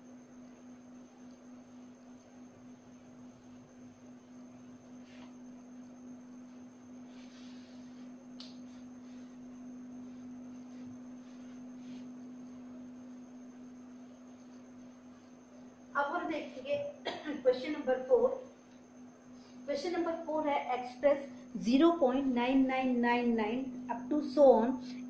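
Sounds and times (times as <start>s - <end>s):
high whine: 3.4s - 18.5s.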